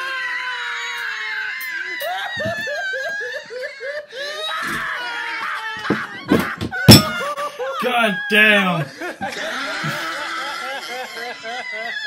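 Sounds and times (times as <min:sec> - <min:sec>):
man laughing hard: 0:05.6 - 0:12.0.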